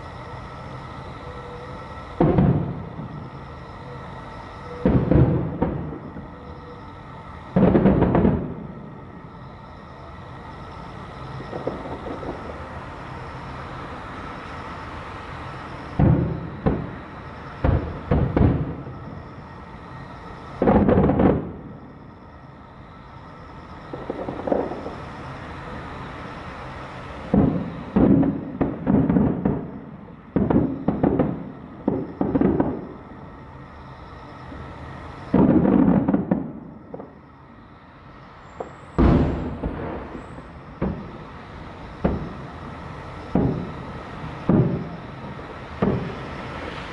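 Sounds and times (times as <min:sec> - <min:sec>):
distant firework booms with echo: 0:02.2 - 0:03.2, 0:04.8 - 0:06.3, 0:07.6 - 0:08.7, 0:16.0 - 0:17.0, 0:17.6 - 0:19.0, 0:20.6 - 0:21.6, 0:27.3 - 0:32.9, 0:35.3 - 0:37.2, 0:38.6 - 0:41.3, 0:42.0 - 0:42.4, 0:43.3 - 0:43.8, 0:44.4 - 0:45.0.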